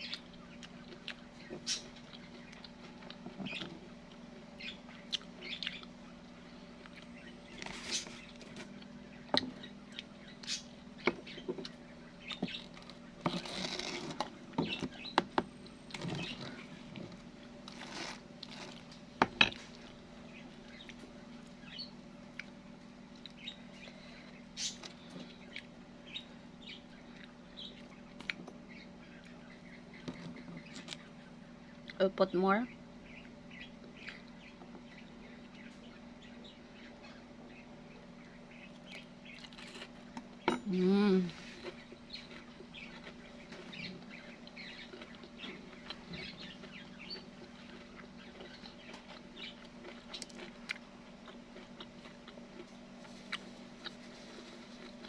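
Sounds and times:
steady low hum: 0:00.0 - 0:55.0
person chewing: 0:04.9 - 0:06.0, 0:38.7 - 0:40.3, 0:41.4 - 0:55.0.

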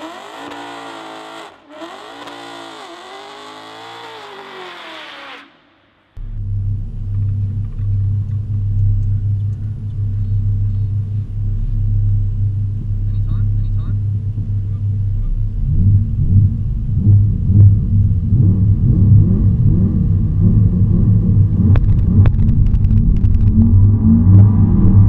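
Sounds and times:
high-revving engine: 0:00.0 - 0:25.0
car engine idling inside cabin: 0:06.2 - 0:18.3.

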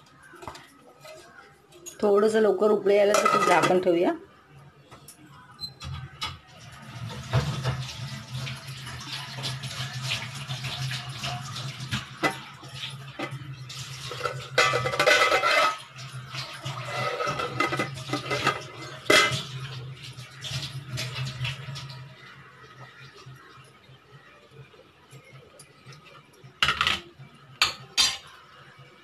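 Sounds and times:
pot bubbling: 0:06.7 - 0:28.5.

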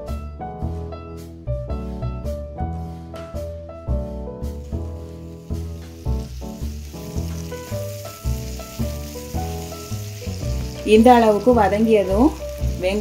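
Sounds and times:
background music with struck notes: 0:00.0 - 0:13.0
vegetables sizzling in oil: 0:04.5 - 0:13.0.

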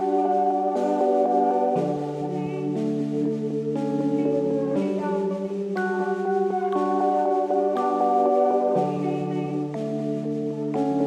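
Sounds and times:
slow ambient music chords: 0:00.0 - 0:11.0.

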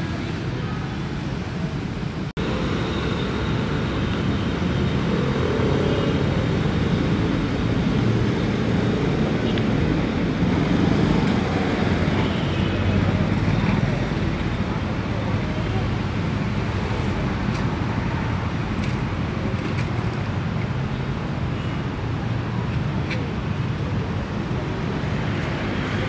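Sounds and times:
street traffic: 0:00.0 - 0:26.0.

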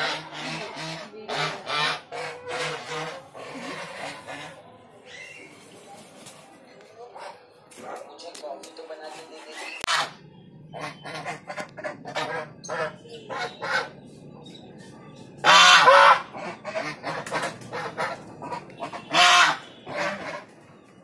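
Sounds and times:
geese honking: 0:00.0 - 0:04.7, 0:09.8 - 0:14.1, 0:15.4 - 0:20.6.

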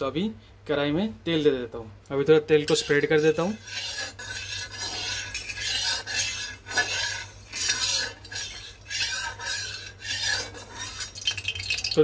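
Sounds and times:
spatula scraping a wok: 0:02.6 - 0:11.9.

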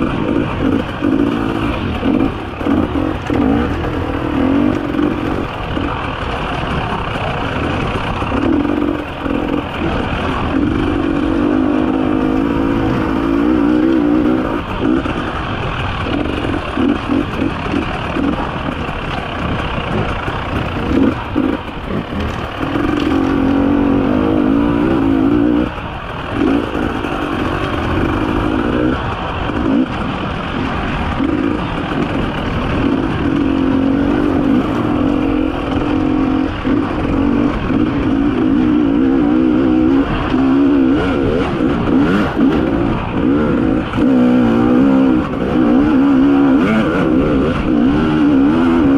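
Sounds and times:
two-stroke motorcycle engine revving: 0:00.0 - 0:48.9.

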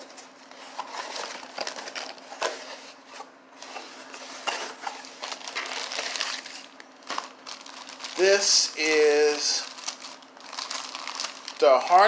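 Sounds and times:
cardboard flaps scraping and rustling: 0:00.0 - 0:07.3
faint steady hum: 0:00.0 - 0:12.0.

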